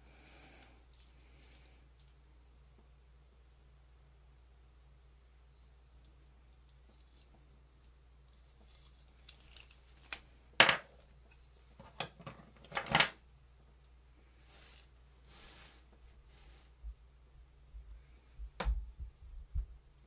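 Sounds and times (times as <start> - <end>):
soft rustling: 14.2 - 17.0.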